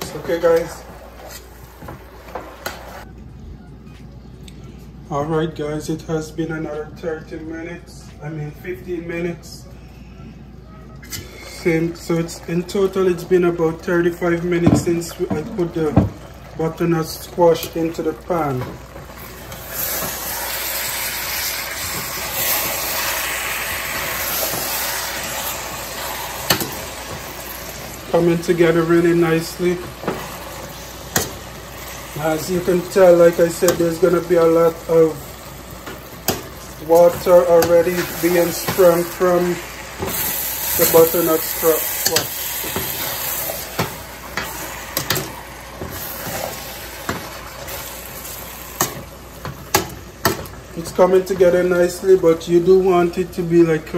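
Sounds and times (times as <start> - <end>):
food sizzling in a pot: 14.8 - 52.2.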